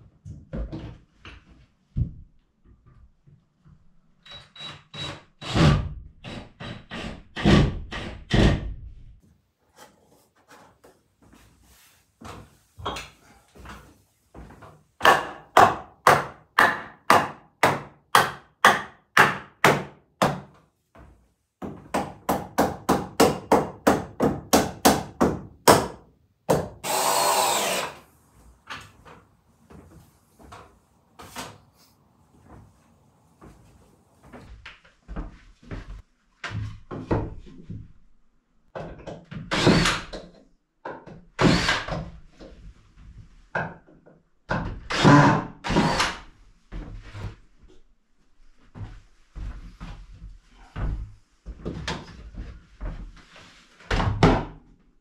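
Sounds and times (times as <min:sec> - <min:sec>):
hammer driving nails into wood: 0:05.0 - 0:08.7, 0:15.0 - 0:20.5, 0:21.9 - 0:28.0, 0:39.4 - 0:40.3
cordless drill running: 0:26.8 - 0:28.0.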